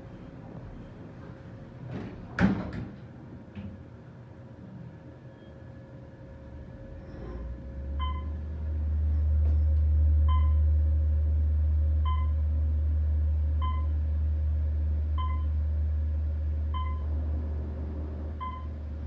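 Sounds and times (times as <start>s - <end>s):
elevator motor hum: 0.0s - 19.0s
short beeps: 10.3s - 10.6s, 12.0s - 12.4s, 13.6s - 13.9s, 15.2s - 15.5s, 16.7s - 17.0s.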